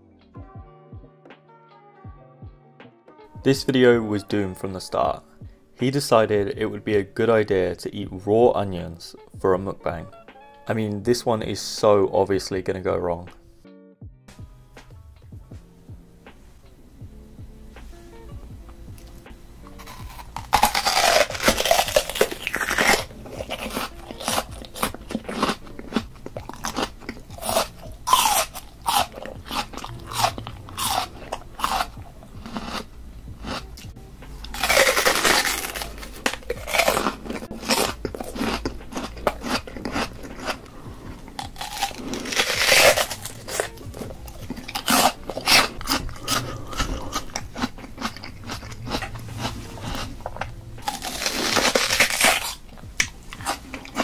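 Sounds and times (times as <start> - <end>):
raw onion crunching: 18.7 - 54.0.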